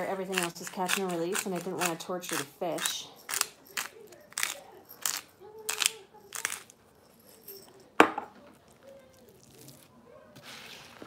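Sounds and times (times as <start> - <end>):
pepper mill grinding: 0.0 - 7.7.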